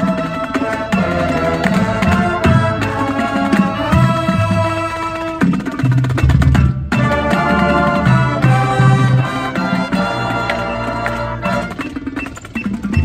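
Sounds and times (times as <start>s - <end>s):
marching band playing: 0.0s - 13.0s.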